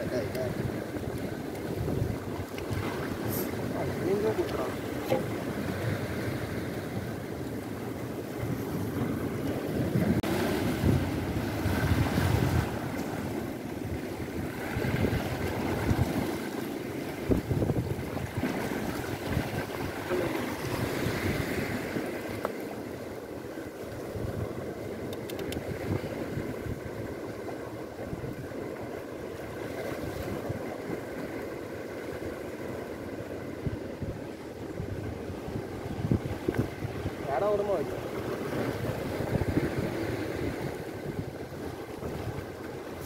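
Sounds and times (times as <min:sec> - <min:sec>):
wind buffeting microphone: 0:00.0 - 0:22.5, 0:33.6 - 0:43.0
sea waves against rocks: 0:00.0 - 0:43.0.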